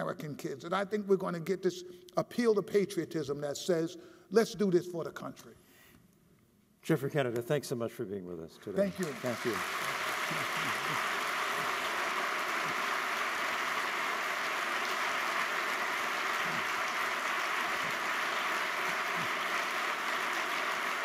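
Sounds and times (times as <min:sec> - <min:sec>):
audience applause: 0:08.8 - 0:21.0.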